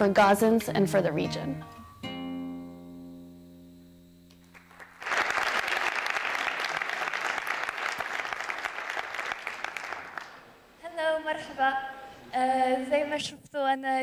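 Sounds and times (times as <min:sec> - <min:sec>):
instrumental music held chord: 0:00.0 - 0:04.7
audience applause: 0:04.5 - 0:10.6.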